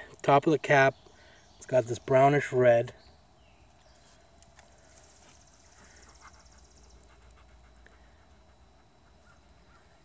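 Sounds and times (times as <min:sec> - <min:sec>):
soft handling clicks and rustles: 0:03.6 - 0:06.4.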